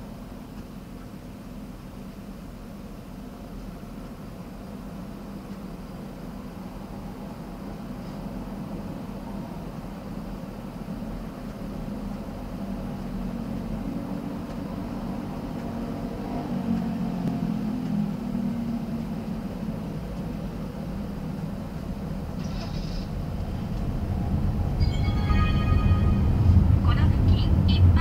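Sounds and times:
car road and engine noise: 0:00.0 - 0:28.0
brief high-pitched sound: 0:24.7 - 0:27.2.

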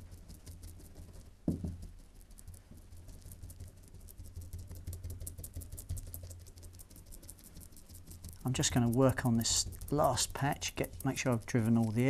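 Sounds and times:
brush dabbing taps: 0:00.0 - 0:12.0
low thud: 0:01.5 - 0:01.8.

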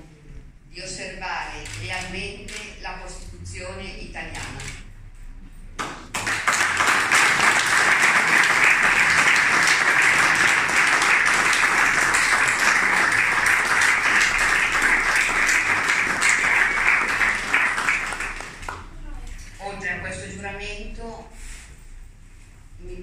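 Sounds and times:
crowd applauding: 0:06.1 - 0:19.0.

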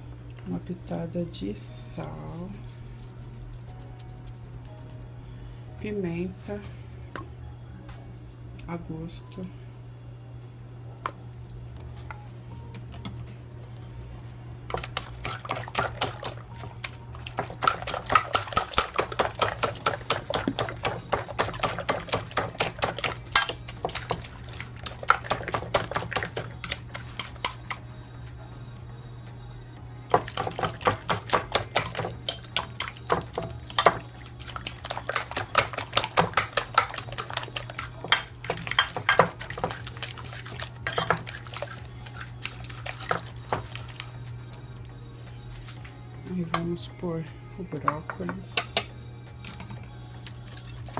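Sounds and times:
fork clinking against glass dish: 0:40.4 - 0:44.0.

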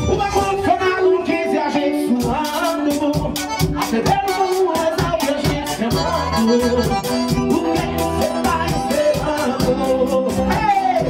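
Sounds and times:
live latin band: 0:00.0 - 0:11.0
man singing: 0:00.0 - 0:11.0.

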